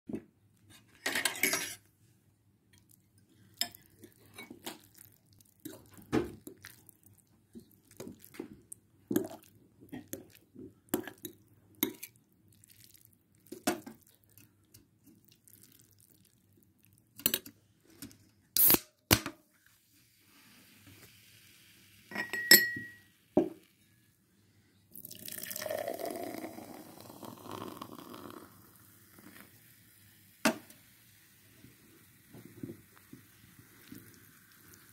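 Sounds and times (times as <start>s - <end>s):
fizzy drink poured into glass: 24.9s - 34.9s.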